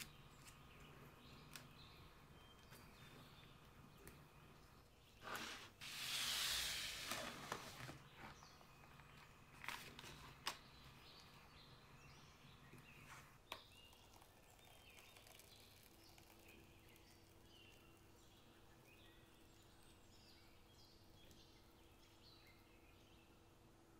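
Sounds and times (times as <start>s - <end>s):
cake board scraping on stone: 5.2s - 8.6s.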